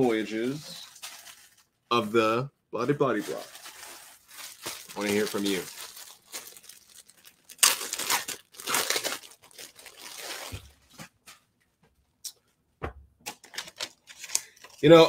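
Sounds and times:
plastic bag crinkling: 0:00.1 - 0:01.8, 0:03.1 - 0:10.9.

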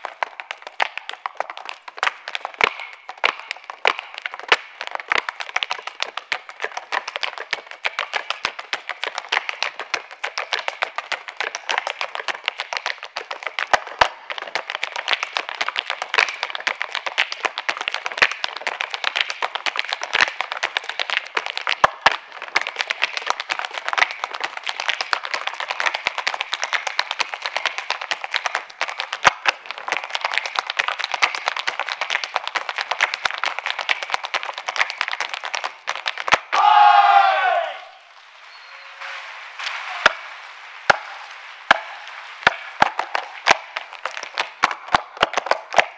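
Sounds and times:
rapid shoe taps on stage floor: 0:00.0 - 0:36.6, 0:41.7 - 0:45.9
heavy foot stamps: 0:39.9 - 0:45.9.

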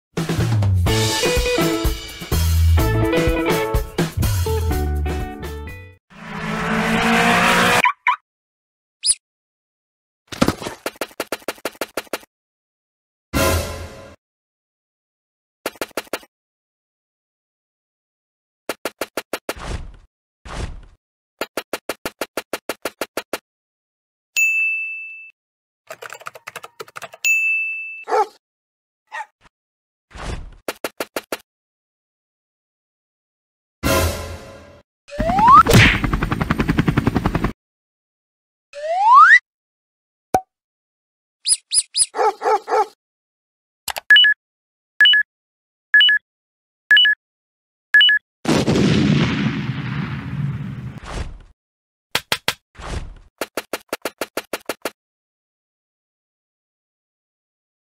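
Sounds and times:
cartoon high squeaks: 0:07.8 - 0:08.2, 0:38.8 - 0:39.4, 0:41.4 - 0:42.3
bright bell ding: 0:24.4 - 0:25.3, 0:27.3 - 0:28.0
computer keyboard typing: 0:25.9 - 0:27.2
timer beeping double tone: 0:45.0 - 0:45.3, 0:46.0 - 0:46.2, 0:46.9 - 0:47.2, 0:48.0 - 0:48.2
loud explosion rumbling: 0:48.5 - 0:51.0.

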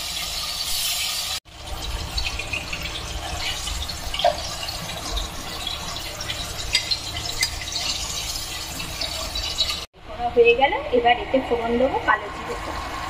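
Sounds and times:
fish sizzling in oil: 0:00.0 - 0:09.9.

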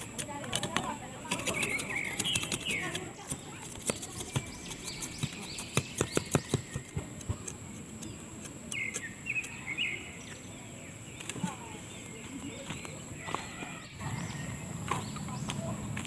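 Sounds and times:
sharp clicks and snaps of fire: 0:00.0 - 0:09.8, 0:11.2 - 0:11.4
small birds chirping: 0:00.0 - 0:16.0.

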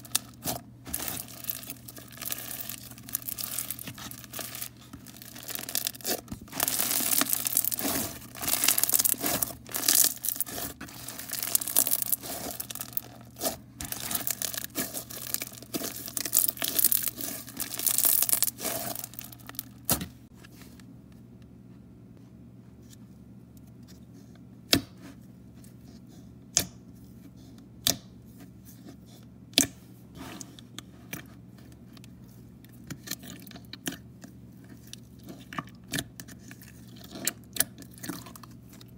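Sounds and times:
crunchy slime crackling: 0:00.0 - 0:20.2.

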